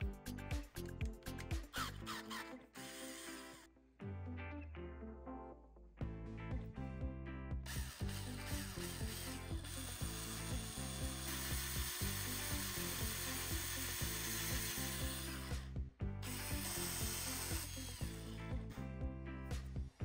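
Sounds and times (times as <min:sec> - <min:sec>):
background music with beat: 0:00.0 - 0:03.4, 0:06.0 - 0:20.0
power drill boring: 0:01.7 - 0:03.7, 0:07.7 - 0:18.8.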